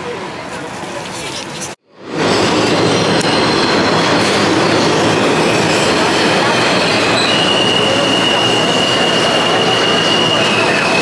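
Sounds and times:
subway train rumbling on rails: 0.0 - 11.0
high wheel squeal: 2.2 - 11.0.

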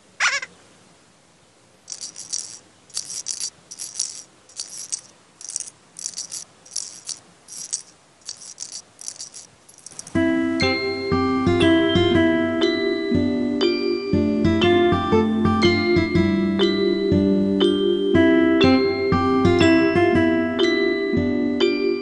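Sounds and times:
shaker rattle percussion: 1.9 - 10.2.

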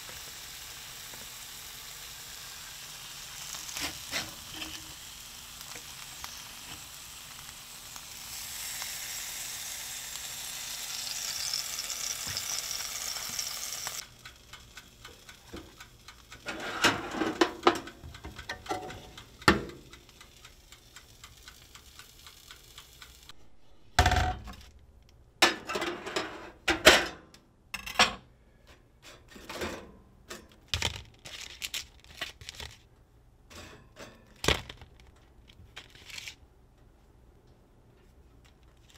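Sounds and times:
fish sizzling in a skillet: 0.0 - 14.1
toaster oven door clicks and clatters: 16.5 - 19.9.

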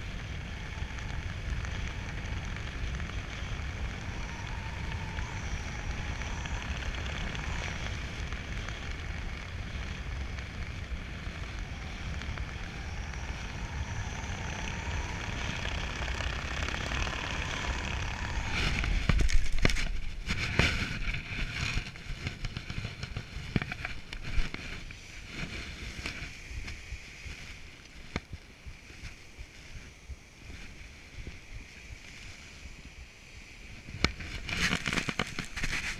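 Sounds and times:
wind rushing over microphone: 0.0 - 35.9
thumps and scraping on grass: 34.0 - 35.9.

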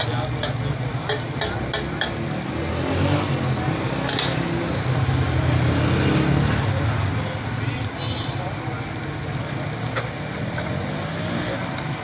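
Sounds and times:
metal spatula clicks on griddle: 0.0 - 2.4, 4.1 - 4.4
onions sizzling in hot oil: 0.0 - 12.0.

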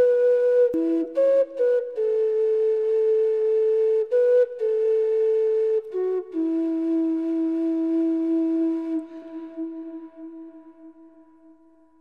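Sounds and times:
slow flute melody: 0.0 - 12.0.

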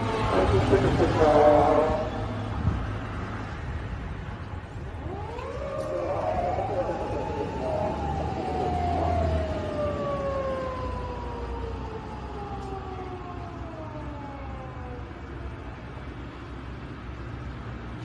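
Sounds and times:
police siren wailing: 0.0 - 2.4, 4.7 - 16.4
low traffic rumble: 0.0 - 18.0.

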